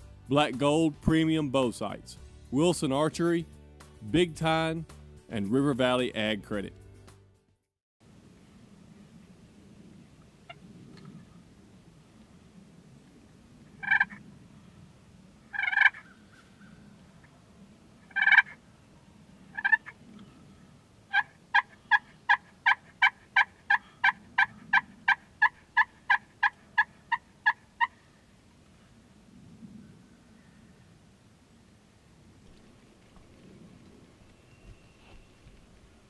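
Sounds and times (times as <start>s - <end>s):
turkey gobbling: 13.8s - 14.2s, 15.5s - 16.7s, 18.1s - 18.6s, 19.5s - 20.0s, 21.1s - 28.0s
turkey yelps: 13.8s - 14.2s, 15.5s - 16.2s, 18.1s - 18.6s, 19.6s - 20.0s, 21.1s - 28.0s.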